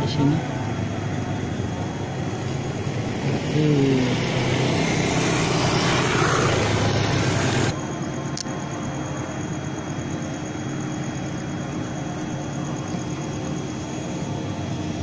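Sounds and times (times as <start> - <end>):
motorcycle engine running: 0.0 - 7.8.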